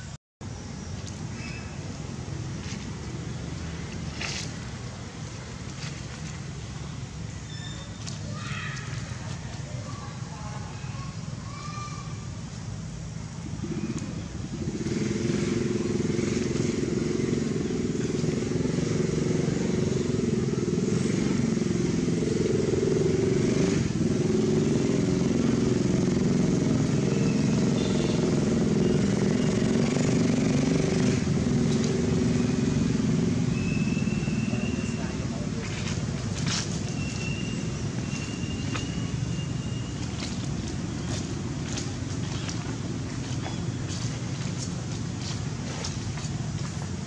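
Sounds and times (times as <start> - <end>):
engine running: 13.3 - 47.0.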